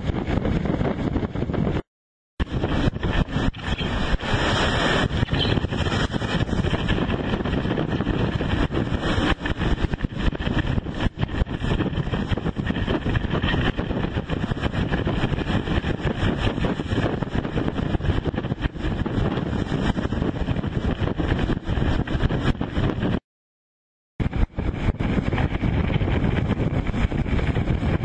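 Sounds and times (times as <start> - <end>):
wind buffeting microphone: 0.0 - 23.2, 24.2 - 28.0
waves breaking and rushing: 2.4 - 23.1.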